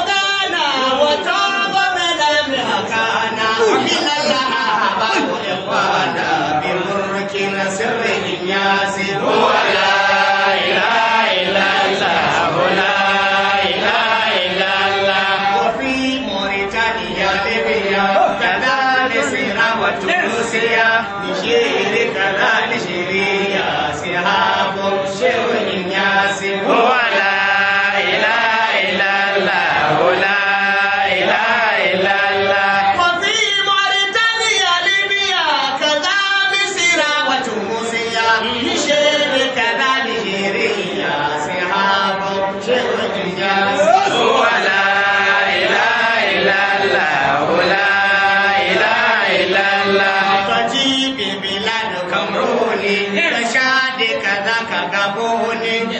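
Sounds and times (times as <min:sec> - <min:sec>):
men chanting into microphones: 0:00.0 - 0:55.9.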